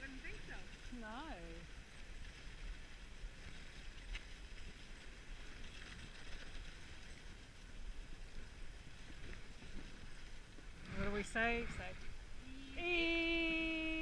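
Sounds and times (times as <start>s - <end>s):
sled runners scraping on snow: 0.0s - 12.3s
low rumble: 8.7s - 14.0s.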